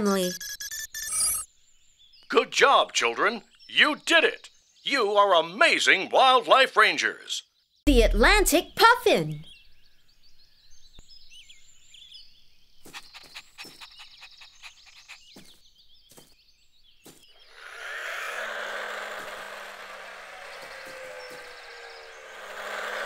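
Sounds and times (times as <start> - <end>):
high bird chirps: 9.4 - 18.0
toy car motor whirring: 17.5 - 23.0.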